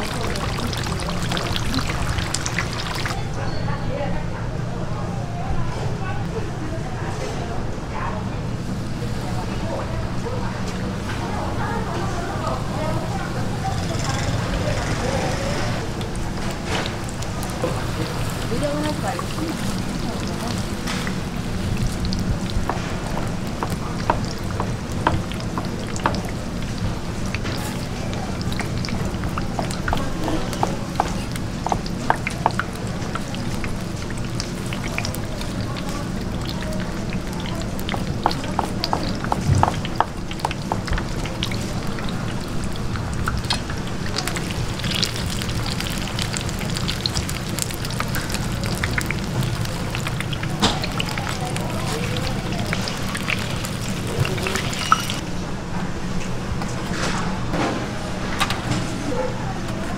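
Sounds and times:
deep-frying sizzle and pops: 0.0s - 3.2s, 15.8s - 55.2s
steady background noise: 0.0s - 59.9s.

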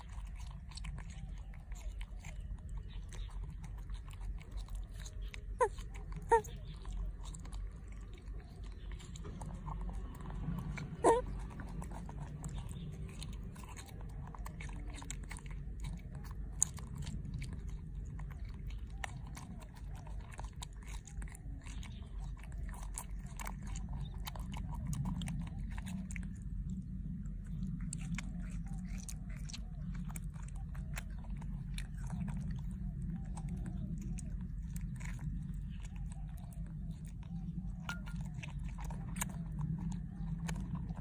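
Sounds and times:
monkey chewing and lip-smacking: 0.0s - 41.0s
monkey squeaking: 5.6s - 6.7s, 10.9s - 11.3s.

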